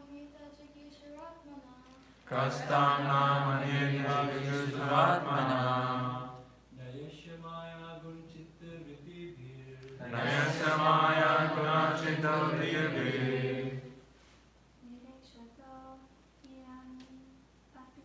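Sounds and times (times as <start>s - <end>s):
group of voices chanting: 2.3s - 6.4s, 10.0s - 13.9s.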